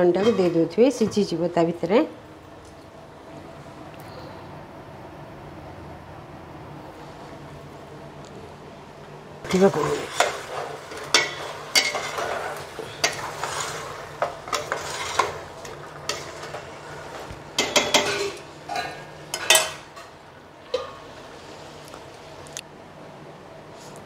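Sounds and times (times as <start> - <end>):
spatula scraping metal pot: 0.0 - 0.8, 9.5 - 18.4
sizzling in pot: 9.4 - 21.8.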